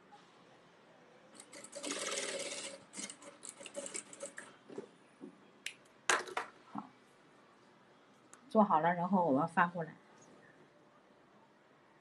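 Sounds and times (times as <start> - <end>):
sewing machine stitching: 1.4 - 4.5.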